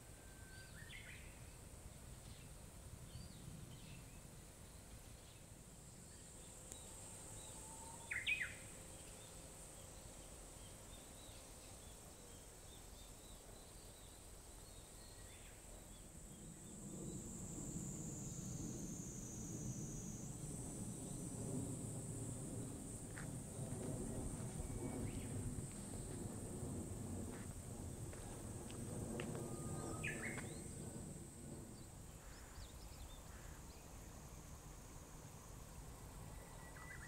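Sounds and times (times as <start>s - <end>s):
high insect drone: 0.0s - 37.0s
low rumbling noise: 16.2s - 36.2s.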